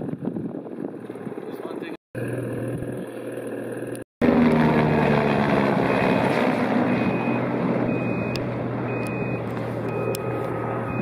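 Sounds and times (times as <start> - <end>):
heavy engine running: 2.2 - 11.0
reversing beeps: 6.9 - 11.0.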